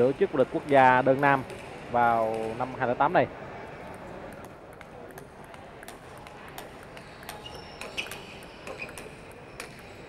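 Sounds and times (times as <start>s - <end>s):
table tennis ball clicking: 3.8s - 10.0s.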